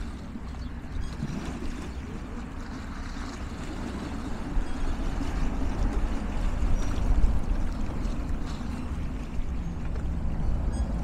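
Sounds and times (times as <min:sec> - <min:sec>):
water lapping against stone: 0:00.0 - 0:10.2
wind rumble on microphone: 0:00.0 - 0:11.0.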